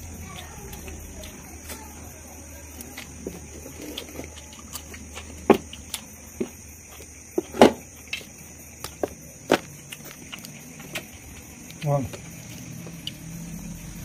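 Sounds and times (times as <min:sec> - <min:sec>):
chewing: 0:00.0 - 0:13.9
steady low hum: 0:00.0 - 0:14.0
wet clicks and smacks: 0:03.9 - 0:07.3, 0:07.9 - 0:13.2.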